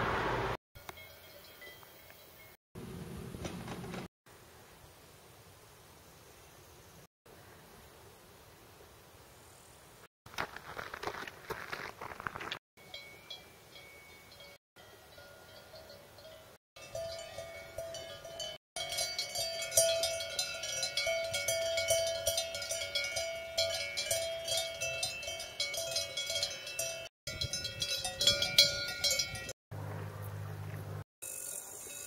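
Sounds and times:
cowbells clanking: 12.8 - 29.6.

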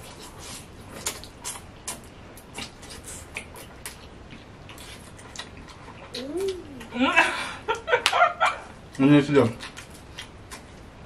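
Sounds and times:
chewing: 0.0 - 6.9, 8.9 - 10.8.

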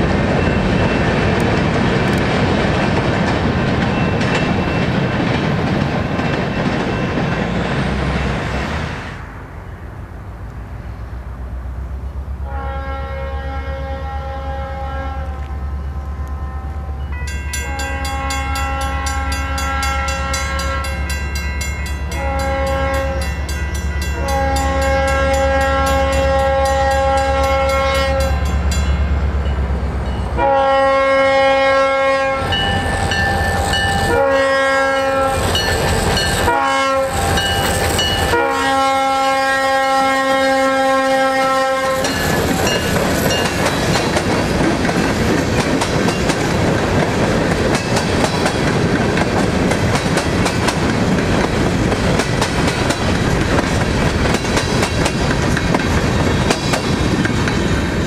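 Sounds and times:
locomotive air horn blasts: 12.4 - 21.1, 22.1 - 23.4, 24.1 - 28.7, 30.4 - 32.7, 33.4 - 42.1.

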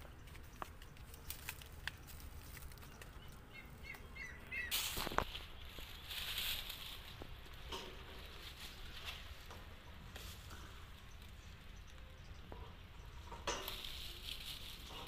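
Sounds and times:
bird chirps: 2.7 - 6.2.

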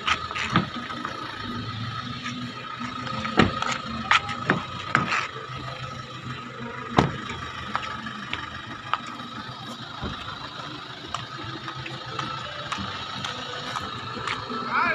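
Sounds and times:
car door thud: 3.3 - 3.7, 6.9 - 7.3.

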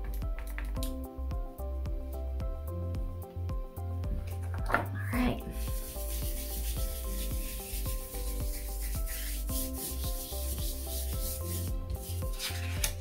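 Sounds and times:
quiet background music: 0.0 - 13.0
hand rubbing on paper: 5.5 - 12.9.

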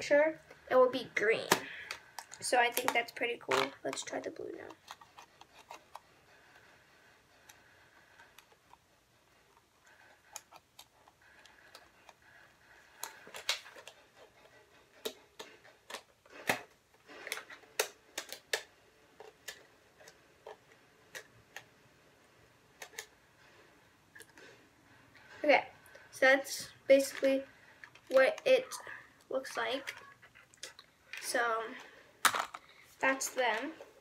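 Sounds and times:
plastic clicks and taps: 1.4 - 4.1.

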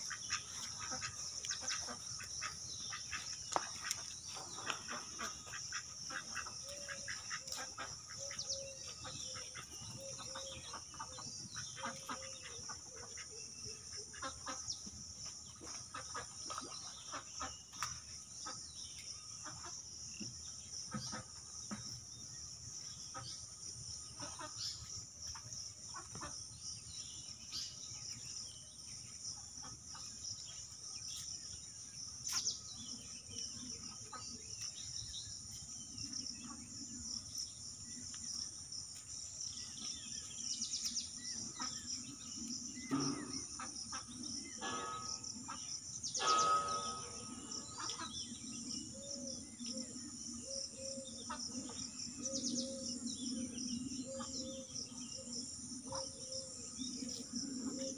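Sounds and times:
insects chirring: 20.0 - 57.9.

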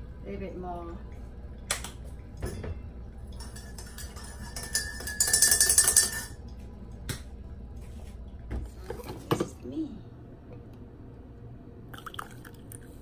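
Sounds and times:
spoon clinking in a mug: 3.3 - 6.4.

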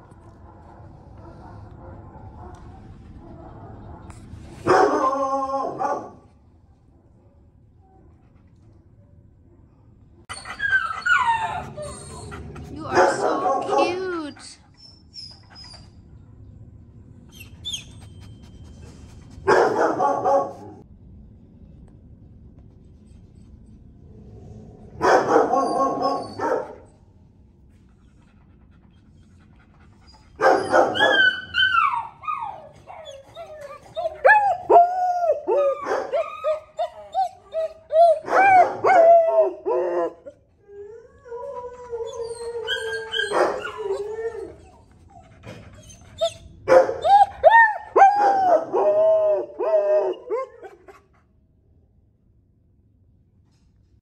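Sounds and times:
dog yowling and whining: 10.3 - 16.0, 25.4 - 26.7, 30.1 - 51.0.

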